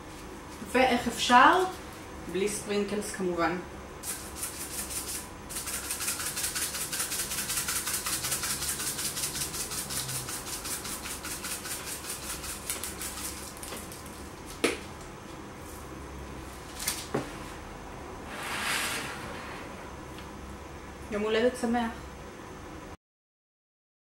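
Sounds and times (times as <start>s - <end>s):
sprinkles rattling in container: 4.0s - 14.2s.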